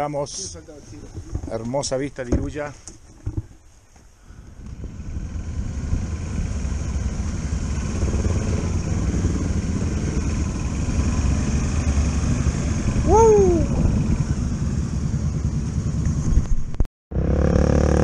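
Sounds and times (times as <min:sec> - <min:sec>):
motorcycle engine running: 0:04.4 - 0:18.0.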